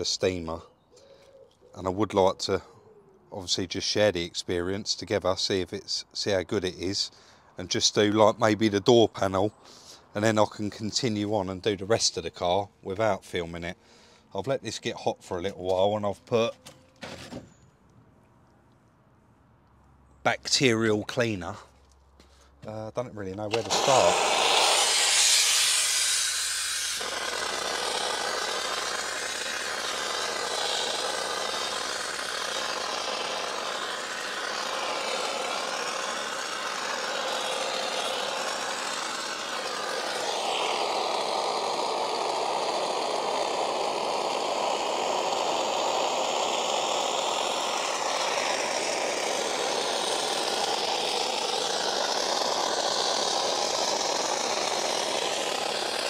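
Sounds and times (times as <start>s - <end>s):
steam cleaner hissing: 23.5s - 56.0s.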